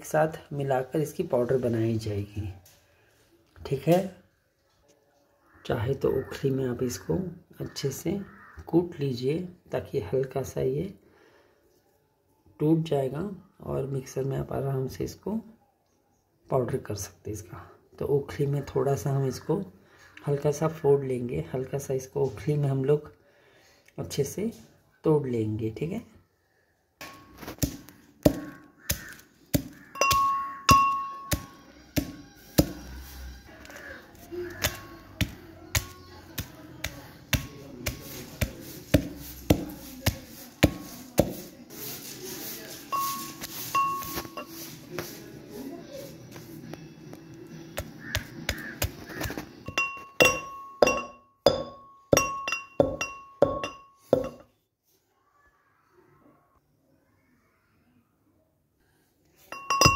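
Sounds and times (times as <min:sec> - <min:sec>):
pestle pounding in metal mortar: 0:27.0 - 0:32.9, 0:34.5 - 0:41.5, 0:47.8 - 0:54.4, 0:59.6 - 0:59.9
metal mortar ringing: 0:27.0 - 0:33.0, 0:33.7 - 0:41.7, 0:42.8 - 0:44.6, 0:47.8 - 0:54.5, 0:59.5 - 0:59.9
ringing metallic clinks: 0:30.0 - 0:31.4, 0:49.7 - 0:54.4, 0:59.5 - 0:59.9.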